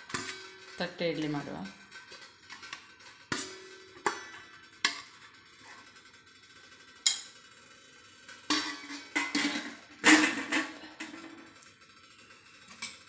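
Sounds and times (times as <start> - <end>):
metal plates clinking on pot: 0.0 - 5.9, 7.0 - 7.4, 8.4 - 11.6.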